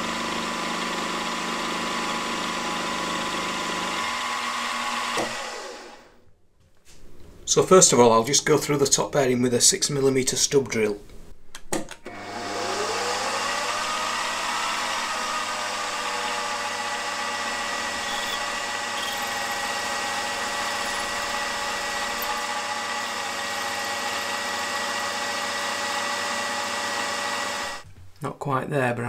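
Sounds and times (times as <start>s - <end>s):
drill boring into metal: 0.0s - 6.0s, 12.6s - 27.8s
milling machine spindle whine: 12.6s - 27.8s.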